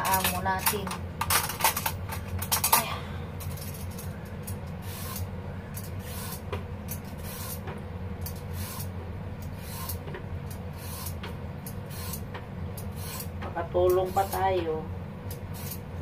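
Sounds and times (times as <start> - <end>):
steady low hum: 0.0 - 16.0
peeler scraping a carrot: 4.8 - 7.6, 8.3 - 14.5, 15.3 - 15.9.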